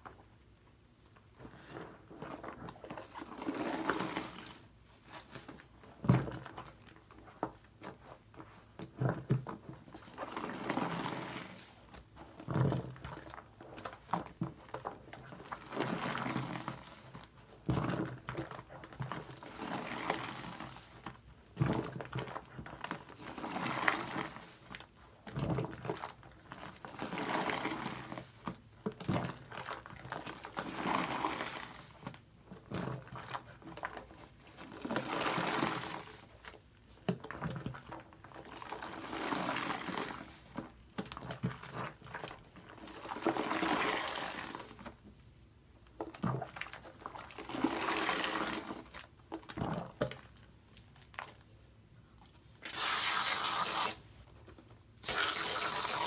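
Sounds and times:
wet squelching of foam sponge: 55.0s - 56.0s.

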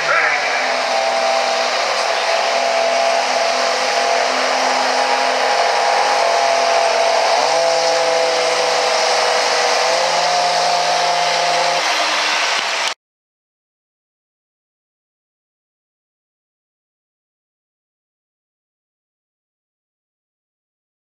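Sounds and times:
diesel engine running flat out: 0.0s - 13.0s
high whine: 0.0s - 13.0s.

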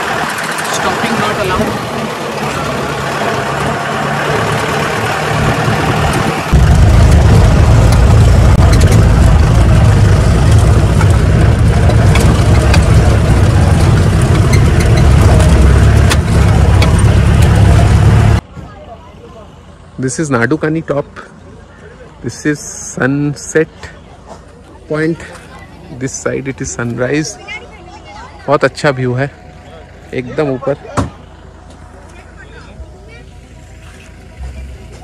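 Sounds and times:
jeep engine droning: 0.0s - 35.0s
knocks and rattles: 5.4s - 18.4s.

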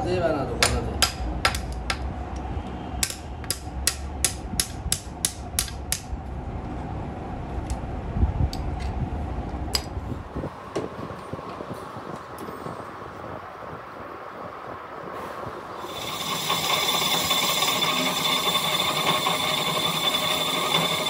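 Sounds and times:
steady low hum: 0.0s - 21.0s
small hammer striking metal: 0.6s - 2.1s, 3.0s - 6.1s.

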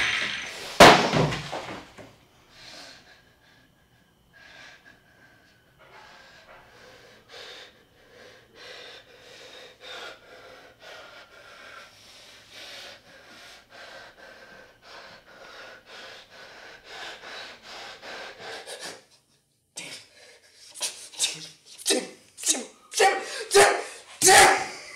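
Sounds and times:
sharp noisy sound: 0.0s - 1.6s
man breathing heavily: 2.4s - 21.8s, 22.8s - 24.9s.

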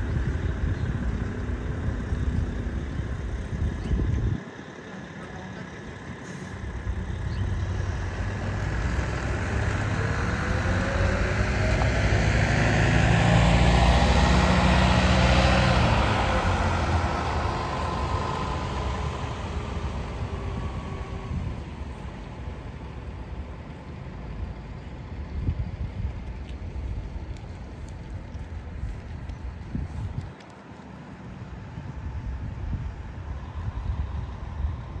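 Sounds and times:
vehicle passing by: 0.0s - 23.8s.

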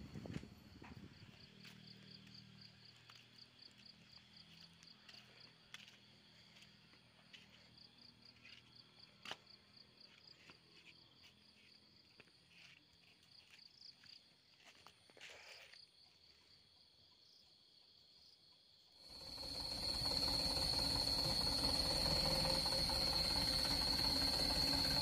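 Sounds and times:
insects chirping: 0.2s - 25.0s
steady high insect trill: 15.5s - 25.0s.

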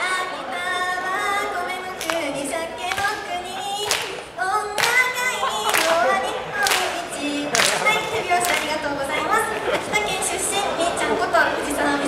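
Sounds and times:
woman singing: 0.0s - 12.0s
sharp hand claps: 2.0s - 8.8s.

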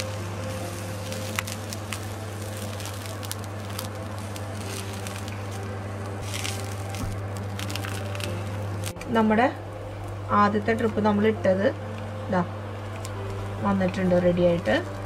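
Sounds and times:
frying sizzle with pops: 0.0s - 9.0s.

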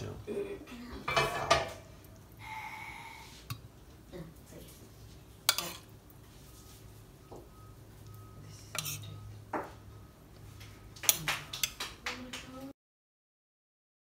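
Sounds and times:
faint low hum: 0.0s - 11.5s
metal spoon scraping ceramic plate: 5.5s - 5.9s, 8.7s - 9.2s.

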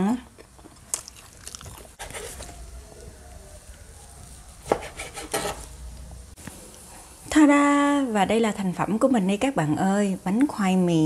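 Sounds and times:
knife sawing through cake: 2.0s - 2.4s, 4.6s - 5.6s.

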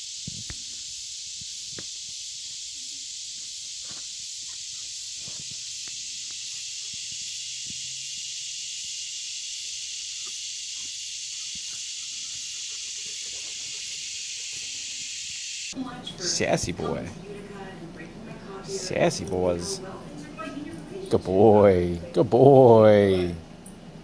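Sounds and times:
rustles and snaps in dry leaves: 0.0s - 7.8s
high-pitched insect chorus: 0.0s - 17.0s.

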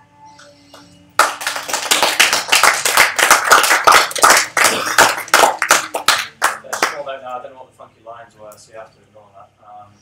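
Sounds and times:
audience applauding: 1.2s - 7.0s.

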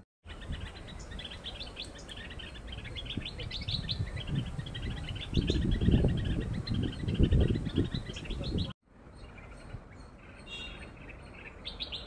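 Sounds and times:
small birds chirping: 0.2s - 12.0s
low rumble on microphone: 3.0s - 8.7s.

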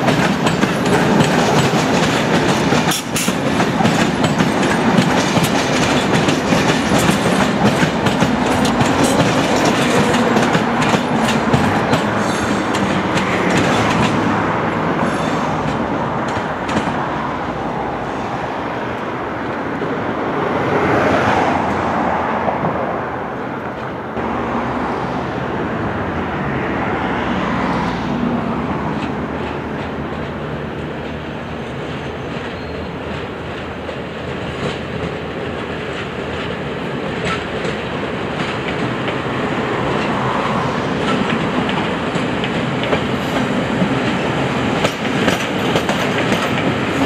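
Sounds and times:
train wheels clickety-clack: 0.0s - 18.0s, 27.7s - 47.0s
train rolling rumble: 0.0s - 47.0s.

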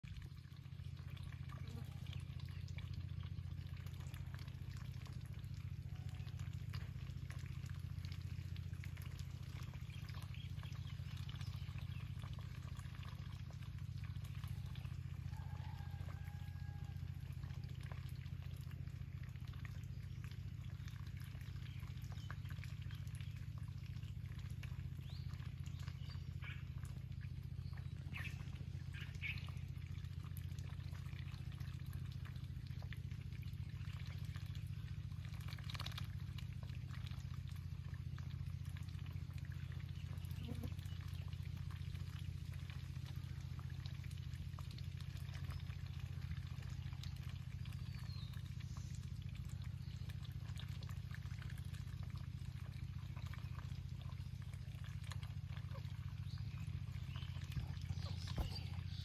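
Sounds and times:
steady low hum: 0.1s - 59.0s
faint short animal calls: 40.2s - 40.9s.

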